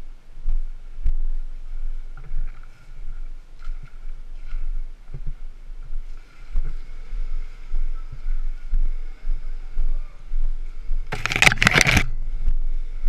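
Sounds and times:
faint high whine: 0:00.0 - 0:13.0
camera jostling rumble and thumps: 0:10.9 - 0:12.7.

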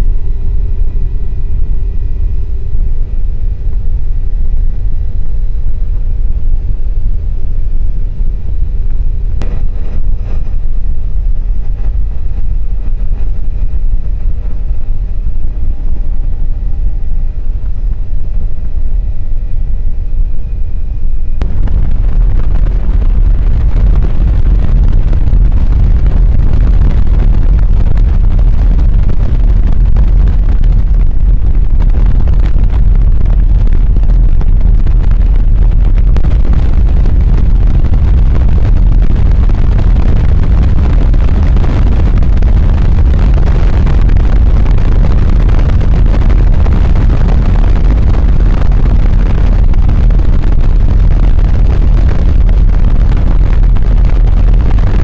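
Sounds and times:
steady whine: 0:00.0 - 0:55.0
wind rushing over microphone: 0:00.0 - 0:55.0.

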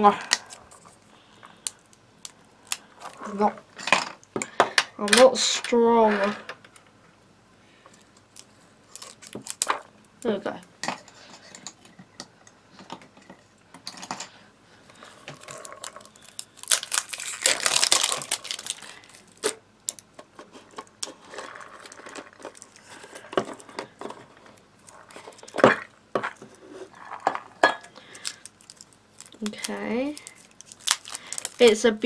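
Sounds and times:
packaging crinkling: 0:00.4 - 0:03.3, 0:08.1 - 0:09.8, 0:14.9 - 0:32.0.

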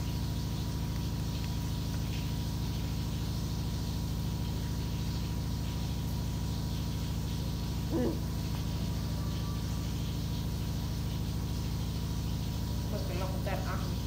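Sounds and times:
low hum: 0:00.0 - 0:14.0
thin high tone: 0:07.8 - 0:11.2.

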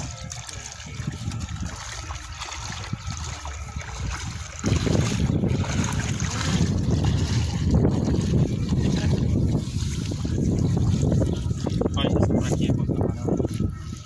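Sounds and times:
water swishing and trickling: 0:00.0 - 0:14.0
wind rumble on microphone: 0:00.0 - 0:14.0.

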